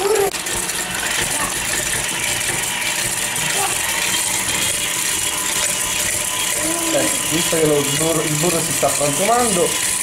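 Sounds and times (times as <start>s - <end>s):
stand mixer whisk beating: 0.0s - 10.0s.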